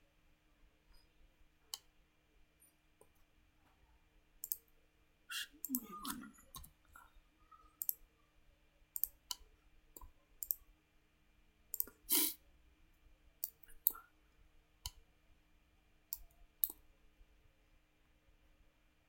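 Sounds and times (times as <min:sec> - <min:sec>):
computer mouse clicking: 0:04.4 - 0:04.7, 0:07.8 - 0:08.0, 0:09.0 - 0:09.4, 0:10.0 - 0:10.6, 0:11.7 - 0:12.0, 0:13.4 - 0:14.0, 0:16.1 - 0:16.8.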